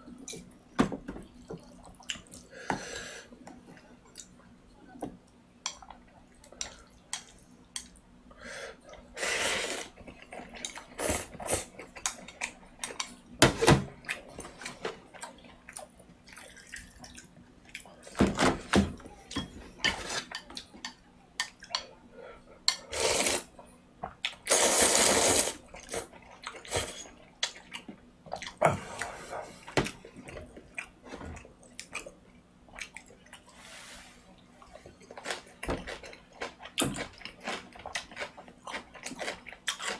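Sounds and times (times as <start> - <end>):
noodles slurped: 24.5 - 26.0.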